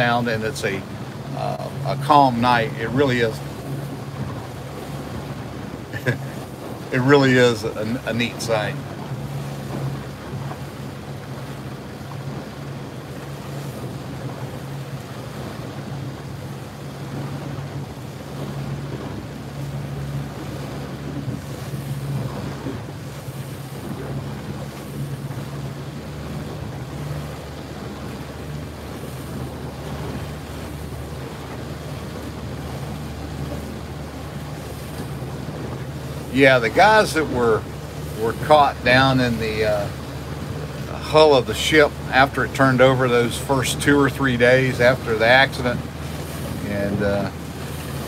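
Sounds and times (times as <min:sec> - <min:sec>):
boat engine humming: 0:00.0 - 0:48.0
water noise: 0:00.0 - 0:48.0
wind buffeting microphone: 0:00.0 - 0:48.0.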